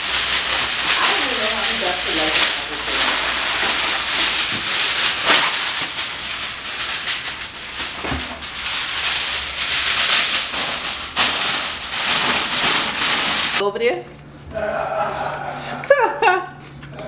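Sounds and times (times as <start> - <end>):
aluminium foil crinkling: 0.0 - 13.6.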